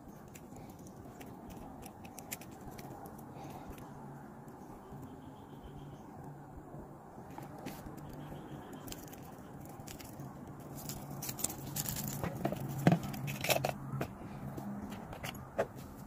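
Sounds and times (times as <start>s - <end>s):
close rustling and scraping: 0.0s - 4.0s, 7.2s - 16.0s.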